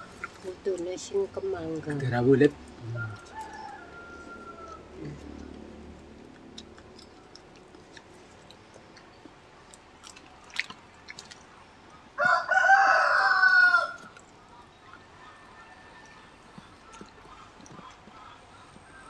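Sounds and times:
people eating with hands: 0.0s - 19.0s
rooster crowing: 2.8s - 5.2s, 12.2s - 14.1s, 15.2s - 16.6s.

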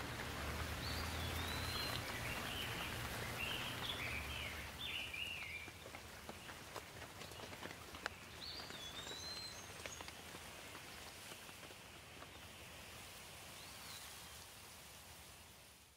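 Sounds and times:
bird calling: 0.0s - 5.7s
close water drips: 0.0s - 11.4s
light rain falling: 0.0s - 15.9s.

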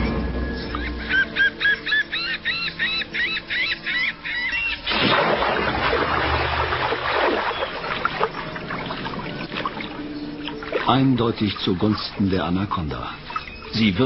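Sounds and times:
bird squawking: 0.6s - 4.9s, 13.0s - 14.0s.

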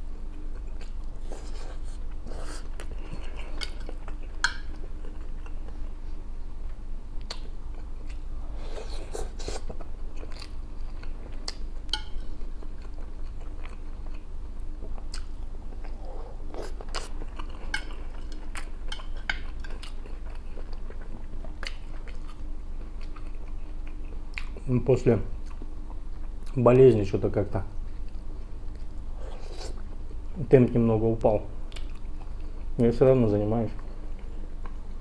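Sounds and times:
man chewing and biting: 7.2s - 24.6s.

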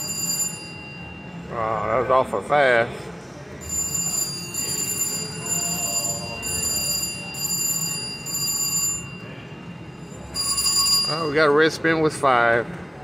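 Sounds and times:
casino hubbub: 0.0s - 13.0s
slot machine electronic chime: 3.6s - 11.6s.

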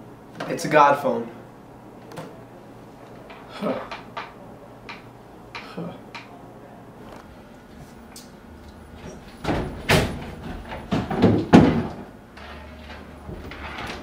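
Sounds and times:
door knocks and slams: 9.4s - 12.1s.

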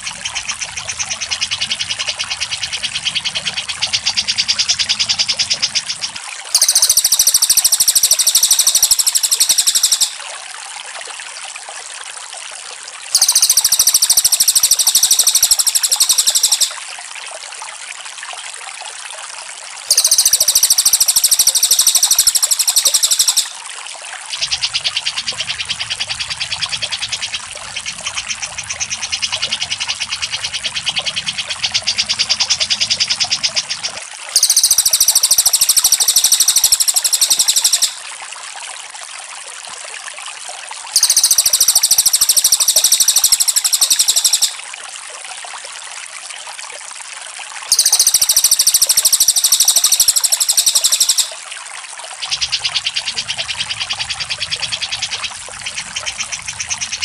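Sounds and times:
high rapid bird chattering: 0.0s - 10.2s, 13.2s - 16.8s, 19.9s - 23.6s, 24.4s - 38.0s, 41.0s - 44.6s, 47.7s - 51.4s, 52.2s - 57.0s
lower rapid bird trill: 0.0s - 10.2s, 13.2s - 16.8s, 19.9s - 23.6s, 24.4s - 38.1s, 41.0s - 44.6s, 47.7s - 51.5s, 52.2s - 57.0s.

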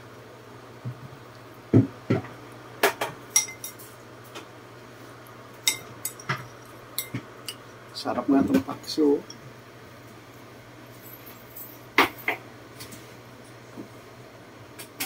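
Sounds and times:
metal spoon clinking on ceramic bowls: 3.3s - 3.9s, 5.6s - 7.6s.

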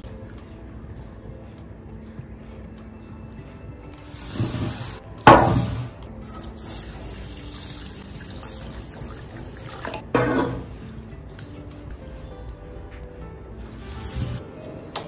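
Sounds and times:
water pouring into a glass bowl: 6.3s - 10.0s.

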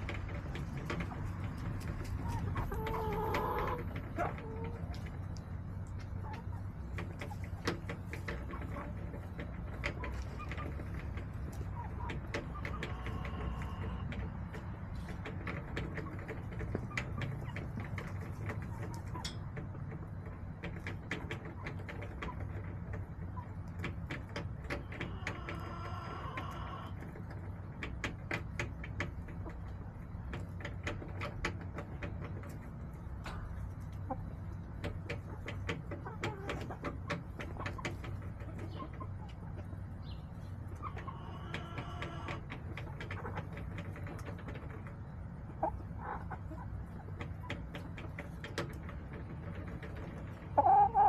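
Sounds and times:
hens clucking: 0.0s - 51.0s.

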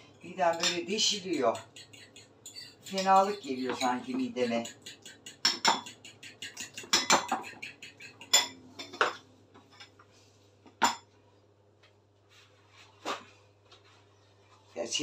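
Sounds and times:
fork beating egg in bowl: 0.2s - 9.0s
fork knocking on bowl: 0.5s - 9.2s.

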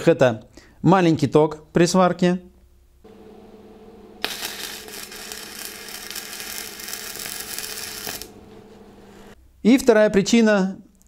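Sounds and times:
steady low hum: 2.6s - 9.7s
welding arc crackling: 4.2s - 8.5s.

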